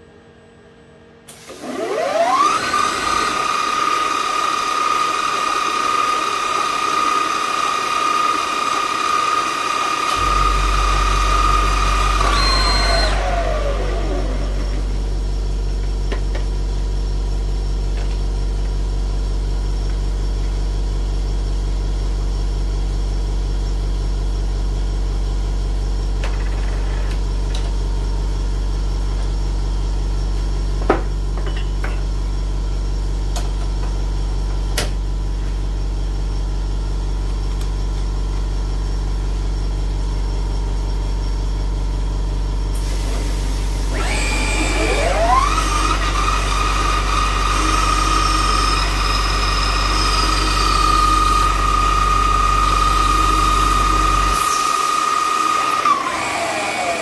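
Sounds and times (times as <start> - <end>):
machine humming: 1.3 - 18.5, 41.6 - 57.0
lathe spindle whine spinning down: 1.5 - 22.3, 35.6 - 57.0.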